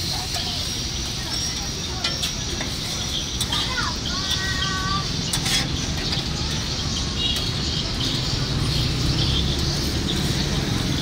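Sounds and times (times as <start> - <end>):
butter sizzling on griddle: 0.0 - 6.8
low rumble of street noise: 0.0 - 11.0.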